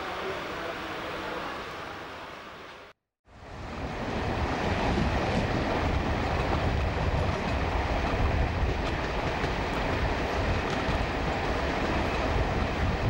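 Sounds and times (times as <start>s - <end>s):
train wheels rumbling on rail: 3.6s - 13.0s.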